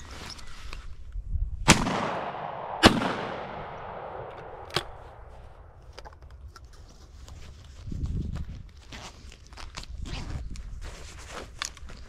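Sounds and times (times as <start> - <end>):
shotgun shot with echo: 1.7 - 5.3.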